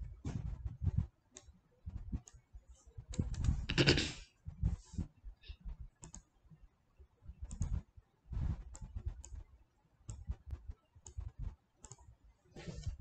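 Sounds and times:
computer mouse clicks: 0:06.0 - 0:06.3, 0:07.4 - 0:07.9, 0:10.1 - 0:12.1.

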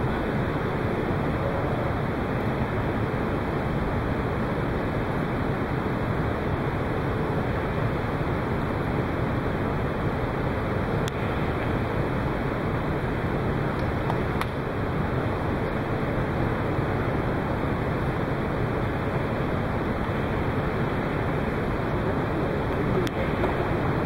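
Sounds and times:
steady rushing background noise: 0:00.0 - 0:24.0.

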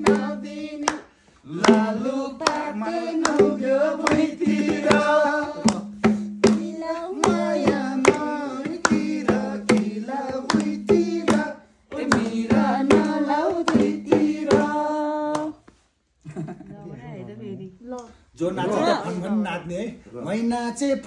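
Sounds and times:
rhythm beaten by hand: 0:00.0 - 0:15.6.

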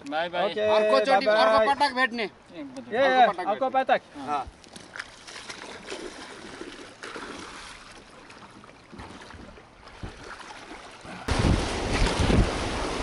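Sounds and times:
river water flowing: 0:04.0 - 0:13.0
rushing river water: 0:04.0 - 0:13.0
wind buffeting microphone: 0:11.3 - 0:13.0.

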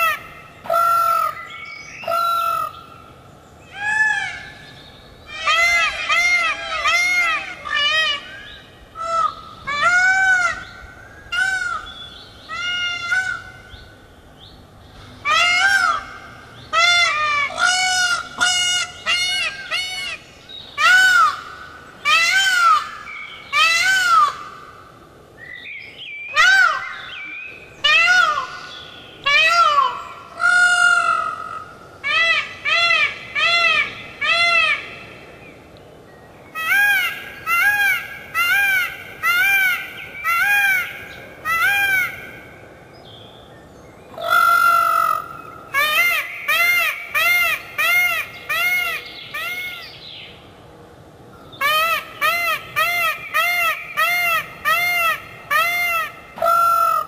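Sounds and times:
peacock calling: 0:00.0 - 0:13.9, 0:36.5 - 0:42.7, 0:44.1 - 0:50.3, 0:51.4 - 0:57.0.

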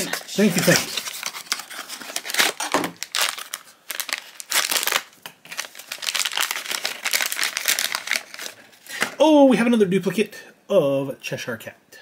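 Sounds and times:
foil pouch crinkling: 0:00.3 - 0:09.1.

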